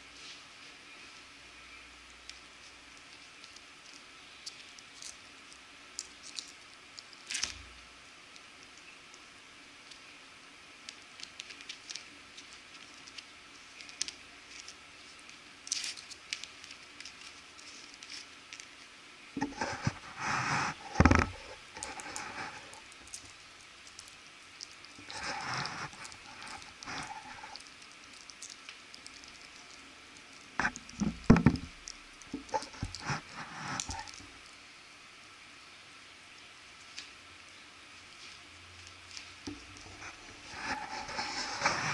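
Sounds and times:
light clicks and scratches: 10.8 - 34.4, 38.1 - 41.9.

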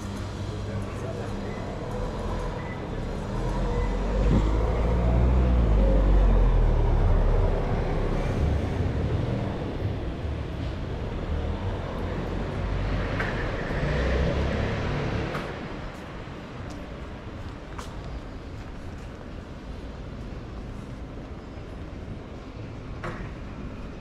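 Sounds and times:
street noise: 0.0 - 24.0
vehicle passing: 2.0 - 9.8.

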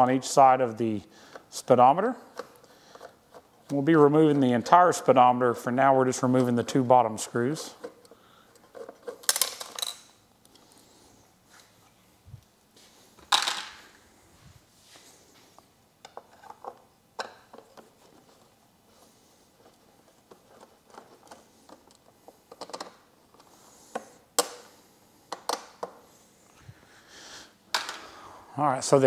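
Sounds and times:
tools and screws clinking: 8.6 - 10.2.

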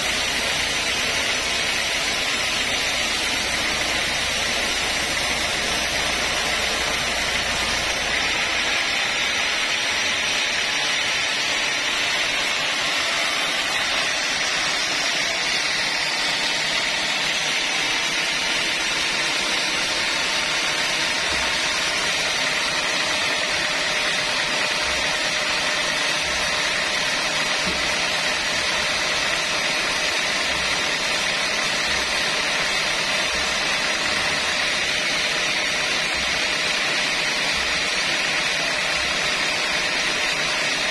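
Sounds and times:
band saw hiss and whine: 0.0 - 31.8.

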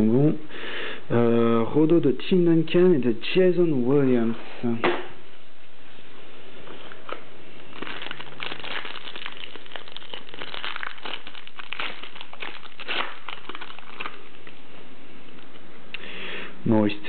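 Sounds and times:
foil pack tearing and crinkling: 7.6 - 14.5.

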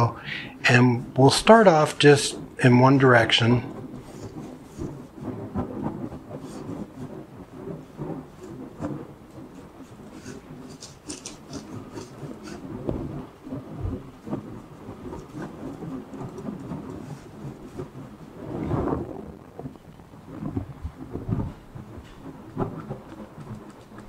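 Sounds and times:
brush scraping on panel: 7.8 - 13.3.

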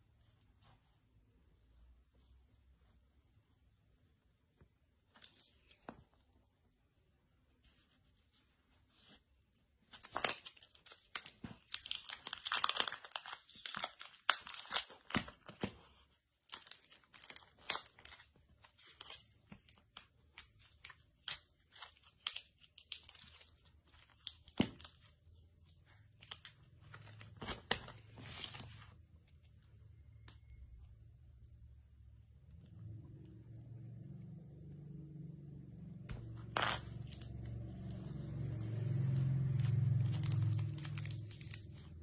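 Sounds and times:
adhesive film crackling: 9.9 - 25.2, 36.5 - 42.0.

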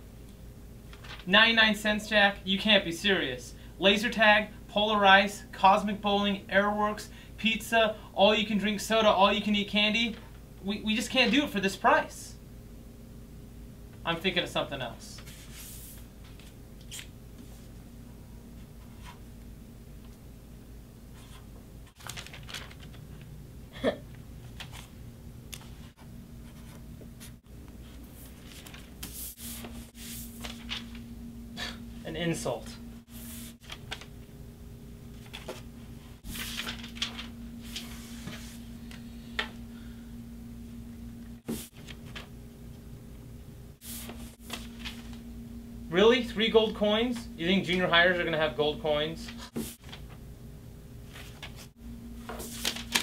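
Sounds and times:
low room hum: 0.0 - 53.0
paper sheet rustling: 0.9 - 1.3, 15.2 - 17.7, 21.1 - 23.3, 24.4 - 25.0, 25.6 - 31.1, 33.1 - 34.3, 35.1 - 39.1, 41.5 - 42.4, 43.8 - 45.2, 49.3 - 50.2, 51.0 - 53.0.

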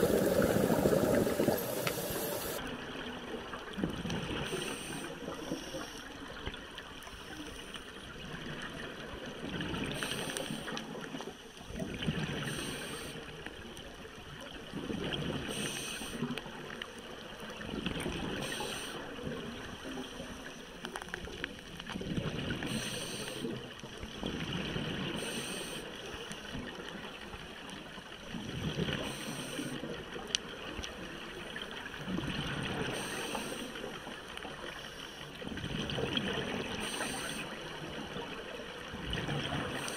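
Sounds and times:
scuba regulator breathing underwater: 0.0 - 2.6, 4.4 - 6.1, 9.9 - 10.8, 12.4 - 13.2, 15.4 - 16.3, 18.4 - 19.1, 22.6 - 23.6, 25.1 - 26.0, 29.0 - 29.9, 32.8 - 33.9, 36.7 - 37.6
exhaled bubbles gurgling: 0.0 - 5.4, 14.4 - 20.4, 35.4 - 39.9.

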